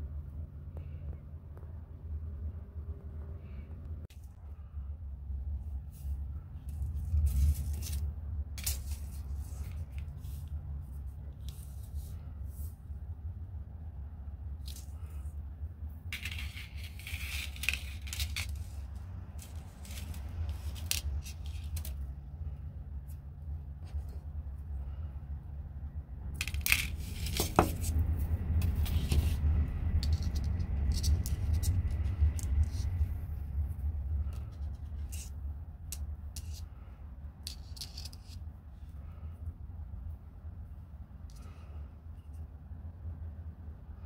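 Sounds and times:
low steady hum: 0:00.0 - 0:44.0
wire clicking and scraping: 0:16.1 - 0:22.2, 0:26.4 - 0:33.2, 0:37.4 - 0:38.5.

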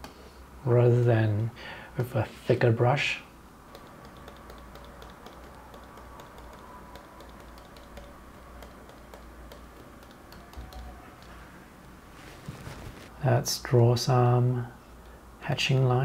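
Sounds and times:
stylus tapping on glass screen: 0:03.7 - 0:11.4.

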